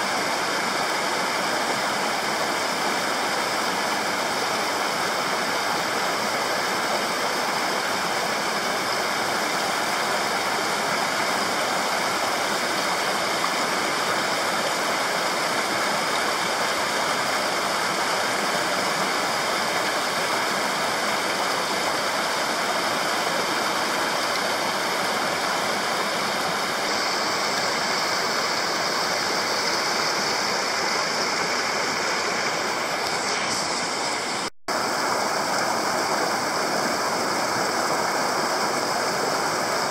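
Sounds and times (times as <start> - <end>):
stream rushing over boulders: 0.0 - 39.9.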